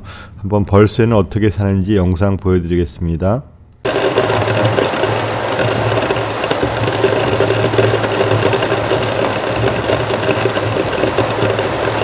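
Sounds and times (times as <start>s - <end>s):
heavy rain falling: 3.9s - 12.0s
steady low hum: 3.9s - 12.0s.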